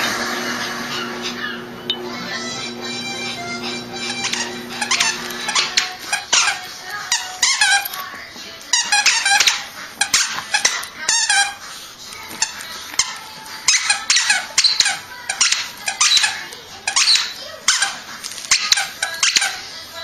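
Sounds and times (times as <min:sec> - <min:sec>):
squeaky toy squeaking: 0:04.0 - 0:08.0, 0:08.7 - 0:11.6, 0:12.3 - 0:19.7.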